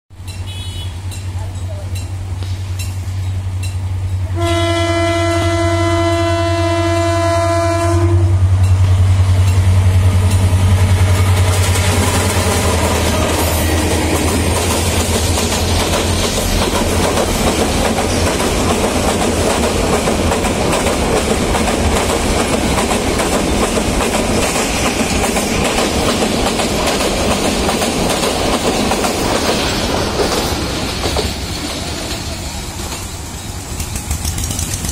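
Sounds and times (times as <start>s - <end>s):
train wheels clattering on rails: 0.2s - 4.2s, 8.4s - 34.9s
train horn blast: 0.5s - 1.1s, 4.3s - 8.5s
locomotive engine running: 8.1s - 34.9s.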